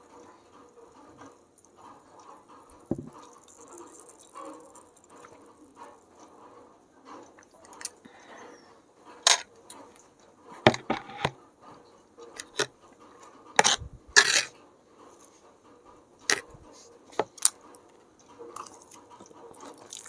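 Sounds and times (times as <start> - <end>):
drinking glass set down: 2.9 - 3.2
fork knocking and scraping tray: 10.6 - 11.4, 13.6 - 14.5.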